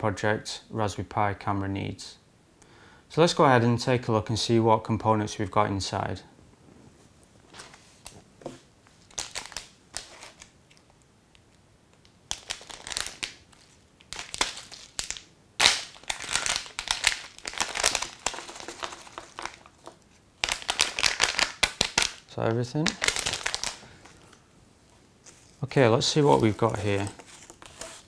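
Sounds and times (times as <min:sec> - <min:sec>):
plastic bag crinkling: 0:09.0 - 0:10.9, 0:12.3 - 0:24.4, 0:25.2 - 0:28.0.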